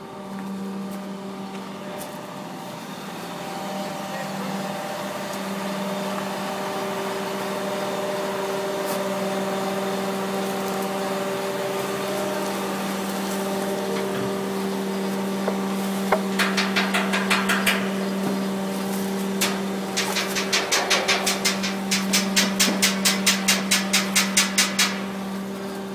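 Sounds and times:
crane engine running: 0.0s - 25.9s
rapid knocks: 15.4s - 18.3s, 19.4s - 25.1s.

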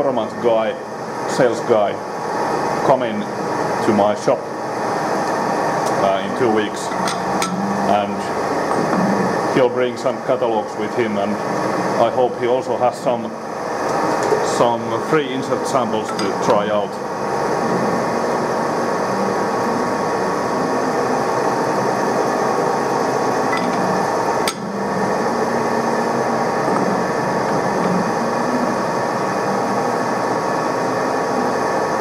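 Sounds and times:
mechanical running noise: 0.0s - 31.9s.

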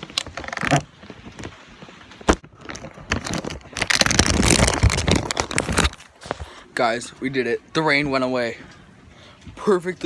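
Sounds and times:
plastic bag crinkling on microphone: 0.0s - 6.6s.

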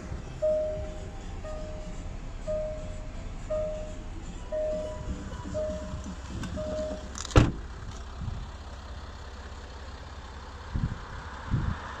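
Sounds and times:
low steady rumble: 0.0s - 12.0s
door-open warning chime pinging: 0.4s - 1.9s, 2.5s - 7.1s
car door shutting: 4.7s - 7.7s.

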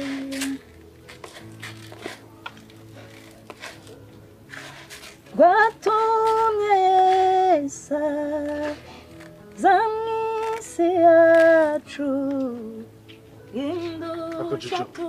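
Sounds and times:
woman singing slow melody: 0.0s - 0.6s, 5.3s - 15.0s.

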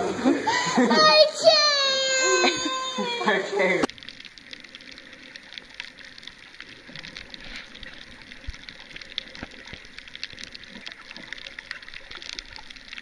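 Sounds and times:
small underwater clicks and crackles: 3.8s - 13.0s
underwater hiss: 4.4s - 11.3s.

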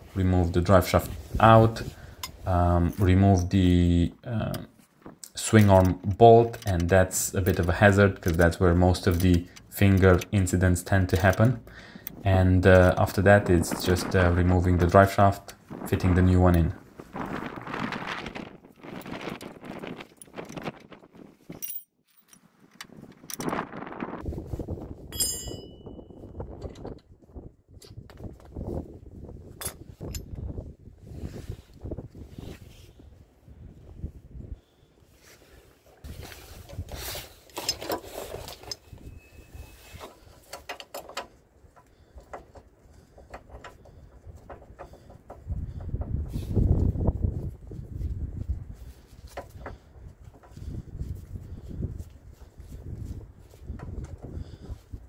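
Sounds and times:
sharp ringing clink: 25.1s - 26.2s
metal hand tools clinking: 25.2s - 26.0s
metal rattling and scraping: 36.0s - 47.5s.

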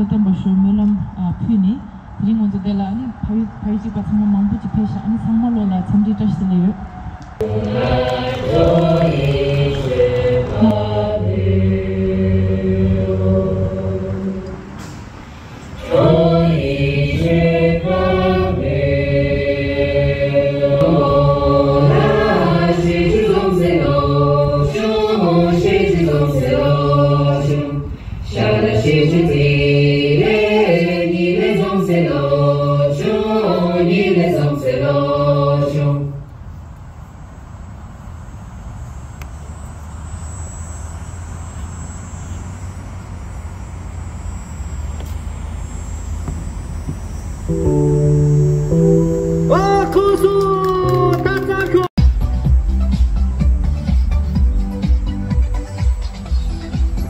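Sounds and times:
group singing unaccompanied: 7.3s - 14.8s, 15.7s - 36.2s.

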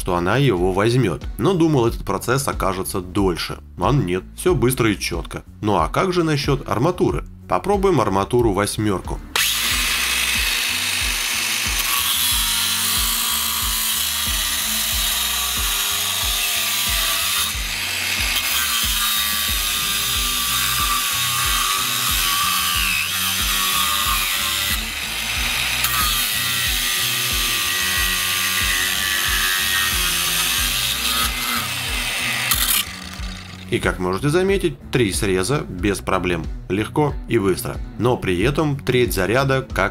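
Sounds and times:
angle grinder cutting steel: 9.4s - 34.0s.

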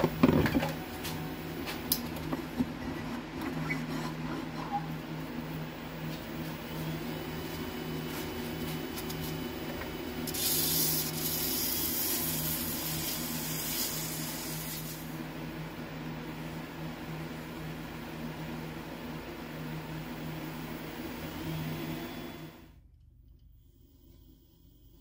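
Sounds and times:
sandpaper rubbing spinning wood: 10.2s - 15.1s
wood lathe motor hum: 19.9s - 22.7s.

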